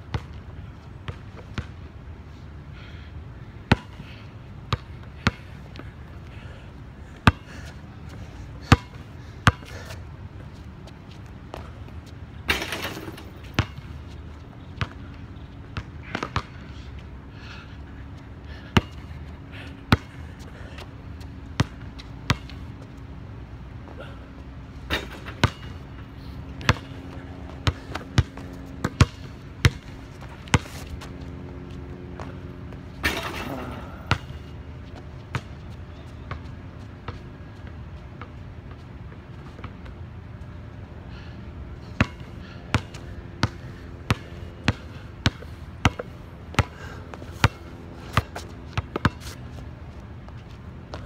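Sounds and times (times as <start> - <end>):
basketball hitting backboard and rim: 12.4 - 14.0, 24.9 - 26.0, 26.6 - 30.8, 33.0 - 34.5, 42.0 - 46.8
basketball thudding on court: 12.5 - 13.7, 33.0 - 34.3.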